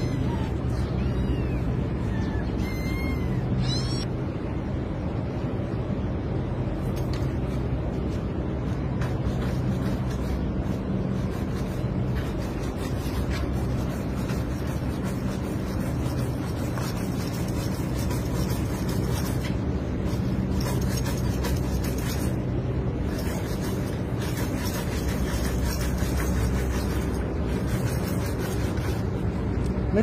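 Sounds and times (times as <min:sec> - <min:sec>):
metal strip scraping on pipe: 0:23.0 - 0:29.1.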